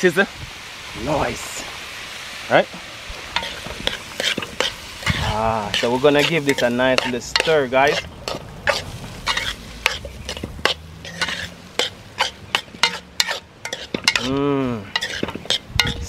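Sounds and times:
rice sizzling in pot: 0:00.0 - 0:16.0
spoon scraping pot: 0:03.3 - 0:16.0.

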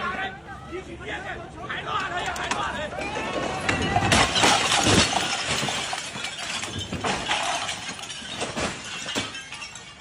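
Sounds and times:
roof tiles crashing onto paving: 0:03.4 - 0:10.0.

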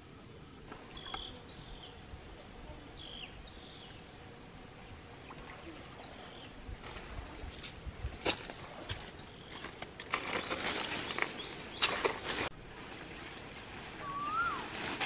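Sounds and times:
bird chirping: 0:00.0 - 0:04.1
outdoor background noise: 0:00.0 - 0:15.0.

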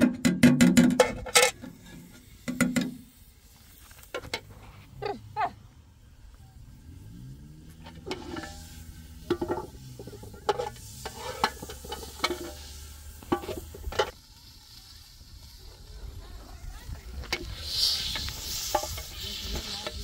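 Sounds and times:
food sizzling in a pan: 0:06.6 - 0:20.0
spoon scraping against pan: 0:07.9 - 0:14.1.

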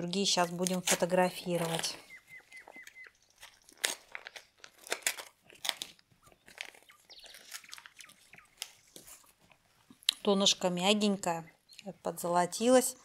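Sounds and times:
paper crinkling and tearing: 0:00.2 - 0:02.0, 0:02.6 - 0:09.4.

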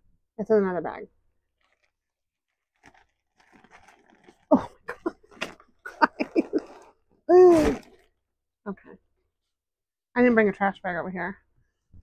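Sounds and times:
plastic bags crinkling: 0:01.6 - 0:06.9.

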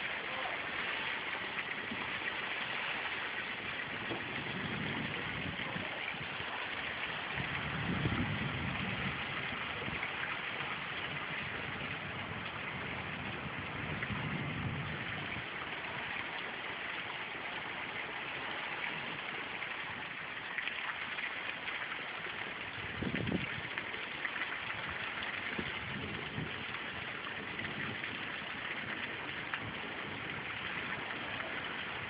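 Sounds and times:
heavy rain falling: 0:00.0 - 0:32.0
low thunder rumble: 0:03.4 - 0:16.3.

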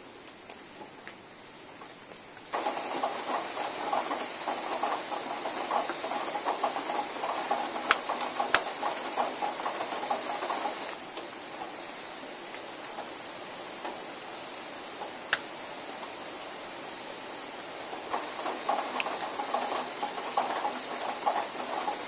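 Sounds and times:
leaves fire crackling: 0:00.0 - 0:22.0
sharp lighter clicks: 0:15.3 - 0:15.5.

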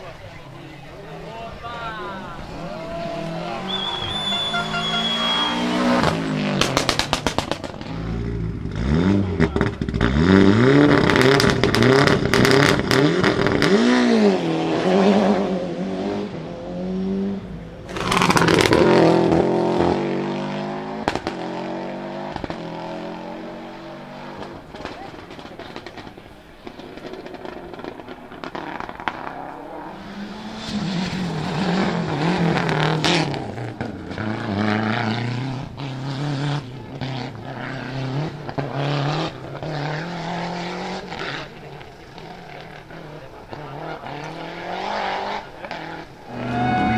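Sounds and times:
rally car engines revving: 0:00.0 - 0:46.9
exhaust pops: 0:03.7 - 0:13.7, 0:17.8 - 0:19.9, 0:24.4 - 0:29.6.

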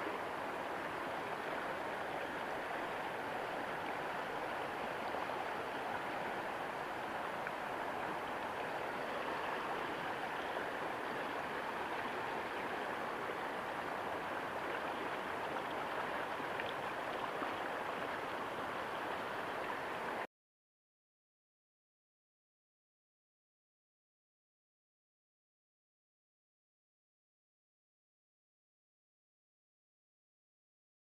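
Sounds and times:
river current rushing: 0:00.0 - 0:20.2.

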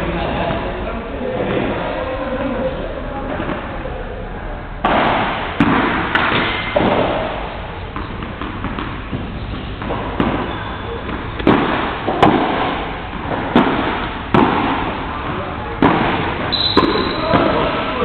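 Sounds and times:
ball bouncing on court: 0:04.8 - 0:18.0
rackets hitting ball: 0:04.8 - 0:18.0.

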